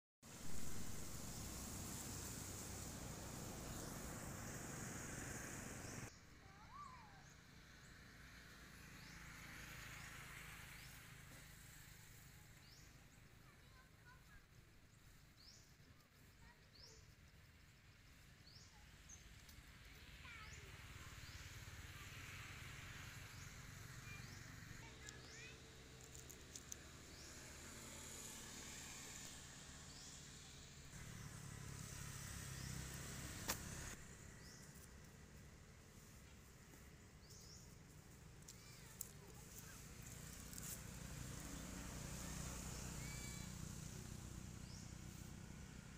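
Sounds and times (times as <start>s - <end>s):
hiss: 0.3s - 6.1s, 20.7s - 34.0s, 39.5s - 45.3s
sharp click: 33.4s - 33.7s.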